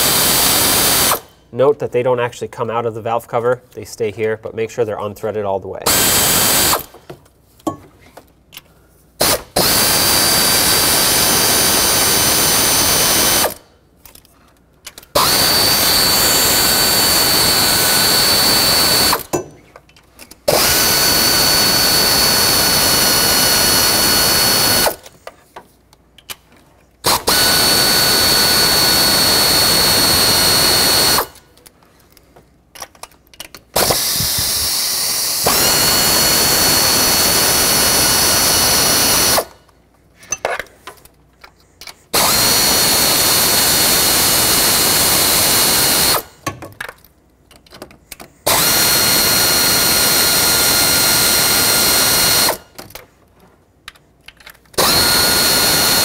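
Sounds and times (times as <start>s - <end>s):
power tool motor whine: 0.0s - 1.3s, 5.9s - 7.0s, 9.2s - 13.6s, 15.2s - 19.4s, 20.5s - 25.1s, 27.0s - 31.4s, 33.8s - 39.6s, 42.1s - 46.3s, 48.5s - 52.6s, 54.8s - 56.0s.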